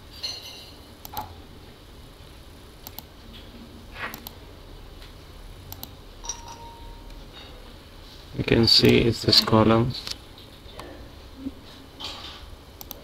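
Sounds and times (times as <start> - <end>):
computer mouse clicking: 1.0 - 1.3, 2.8 - 3.1, 4.1 - 4.4, 5.7 - 5.9, 12.8 - 13.0.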